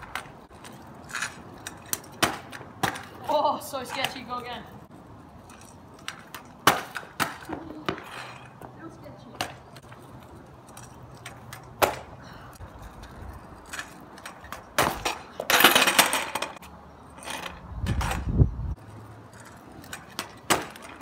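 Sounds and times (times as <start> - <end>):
scooter clacking on asphalt: 0.0 - 21.0
scooter scraping: 0.0 - 21.0
wheels rumbling over asphalt: 7.5 - 21.0.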